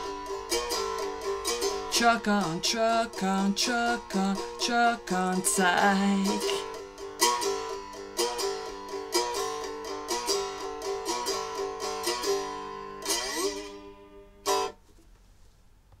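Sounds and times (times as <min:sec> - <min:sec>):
slide guitar strumming: 0:00.0 - 0:14.8.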